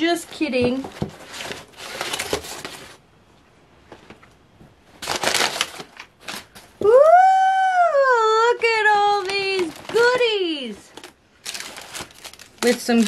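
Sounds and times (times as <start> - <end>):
packing material rustling in box: 0.3 - 3.0, 5.0 - 6.7, 9.0 - 13.0.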